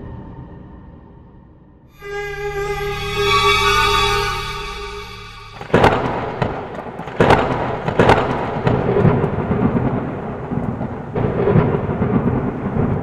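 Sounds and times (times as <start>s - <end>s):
thunder cracks: 5.5s - 13.0s
rumbling thunder: 5.6s - 13.0s
rain: 6.0s - 13.0s.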